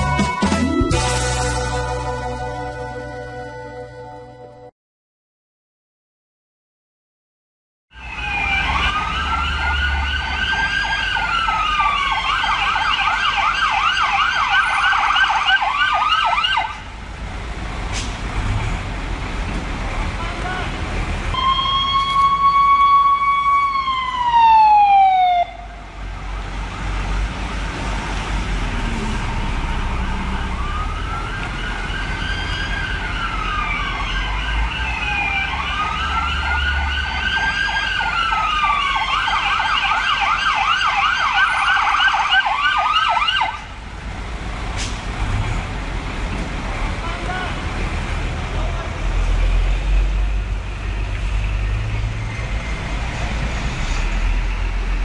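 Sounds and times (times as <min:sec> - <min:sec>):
fire engine siren: 0:07.9 - 0:17.1, 0:20.3 - 0:44.0
traffic noise: 0:07.9 - 0:55.0
electronic siren wailing and yelping: 0:08.0 - 0:16.8, 0:21.4 - 0:25.7, 0:29.7 - 0:43.6.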